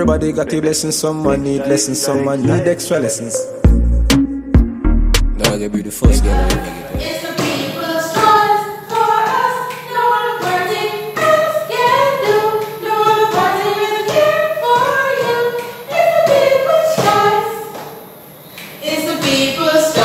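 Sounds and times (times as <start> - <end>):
women singing over a beat: 6.1 - 20.0.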